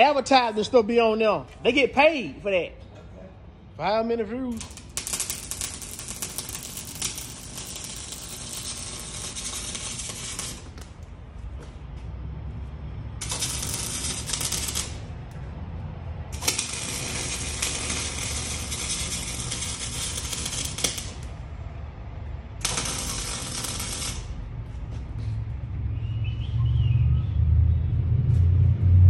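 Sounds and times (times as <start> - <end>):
electric arc welding crackling: 4.4 - 11.1, 13.1 - 15.4, 16.3 - 21.5, 22.6 - 24.5.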